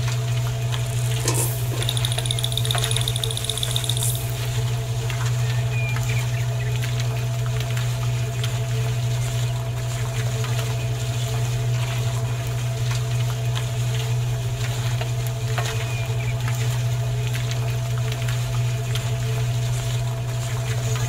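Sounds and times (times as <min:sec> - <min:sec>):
faint ticks: 0:00.7 - 0:04.5
small electric motor humming: 0:00.7 - 0:04.6.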